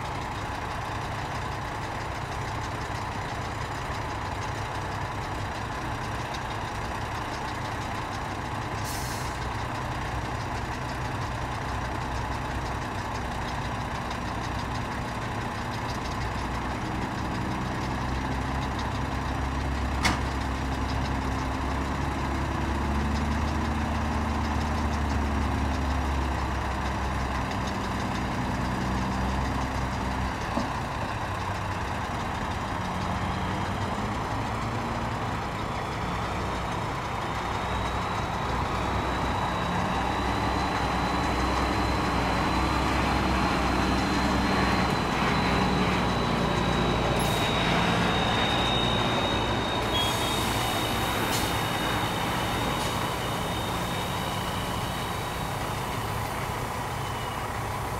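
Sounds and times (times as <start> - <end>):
diesel truck engine running: 0.0 - 57.9
air hiss: 49.8 - 56.4.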